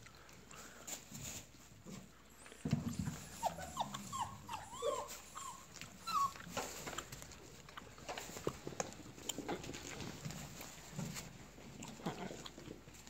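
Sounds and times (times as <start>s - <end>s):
puppies yipping and whining: 2.9s - 6.8s.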